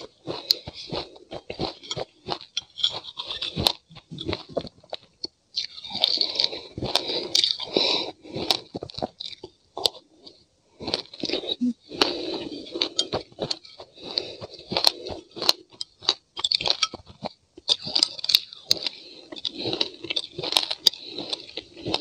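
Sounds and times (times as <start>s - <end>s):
crunching and chewing: 0.0s - 22.0s
metal spoon scraping in glass mug: 2.6s - 3.5s.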